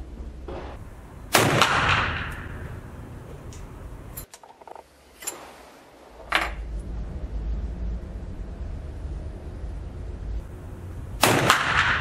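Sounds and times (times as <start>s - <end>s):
rifle shot tail: 0.8s - 3.0s, 10.5s - 12.0s.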